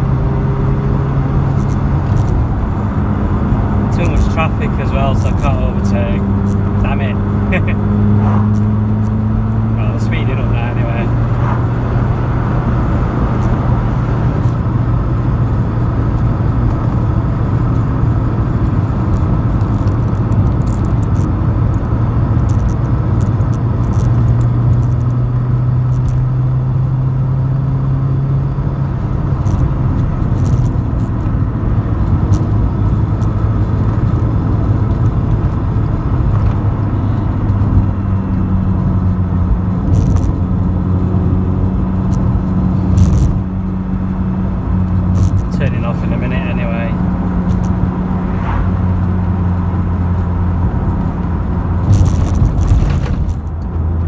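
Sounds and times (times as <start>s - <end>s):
car engine running steadily: 0.0s - 54.0s
road and tyre noise: 0.0s - 54.0s.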